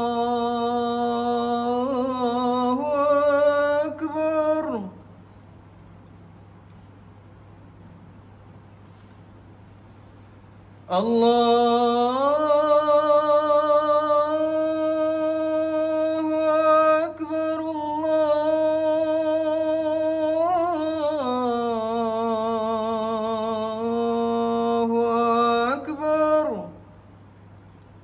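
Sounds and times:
man chanting call to prayer: 0.0s - 5.0s, 10.9s - 26.8s.

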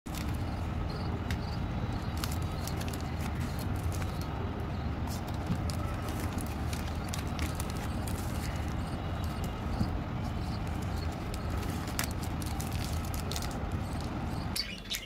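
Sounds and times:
steady low rumble: 0.1s - 14.6s
plastic candy wrappers crinkling: 2.0s - 4.3s, 5.0s - 9.6s, 10.6s - 14.1s.

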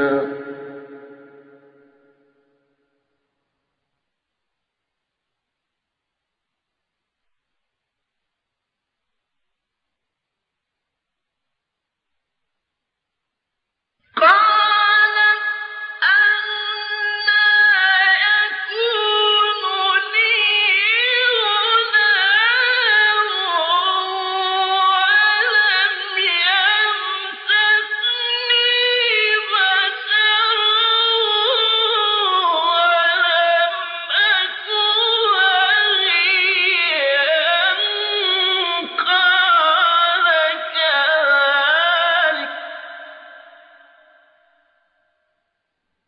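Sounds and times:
man reciting in melodic chant: 0.0s - 1.1s, 17.3s - 43.4s.

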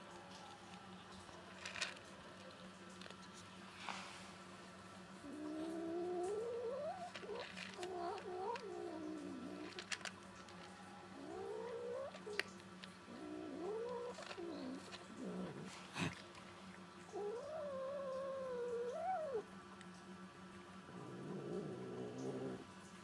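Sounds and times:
cat yowling: 17.1s - 19.4s.

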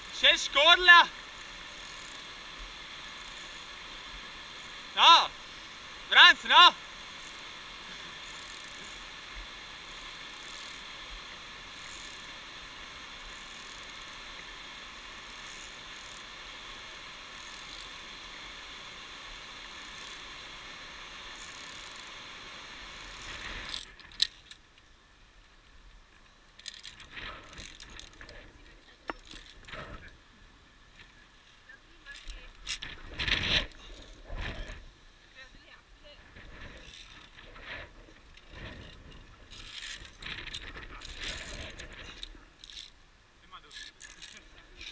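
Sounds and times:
rushing mountain stream: 0.0s - 23.7s
carabiners clicking on steel cable: 23.0s - 24.8s, 26.5s - 29.9s, 32.1s - 34.8s, 36.7s - 44.9s.

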